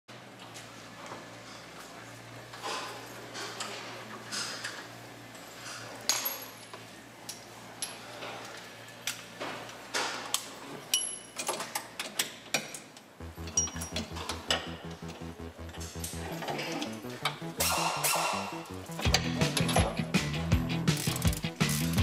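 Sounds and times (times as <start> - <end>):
music with steady bass beat: 13.2 - 22.0.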